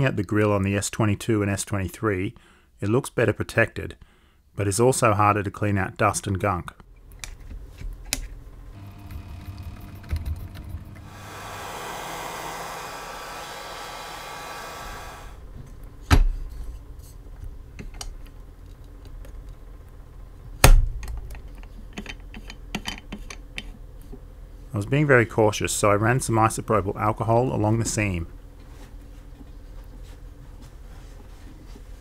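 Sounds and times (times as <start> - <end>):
whirring hiss: 11.0 - 15.4
small metal clicks and taps: 21.0 - 23.7.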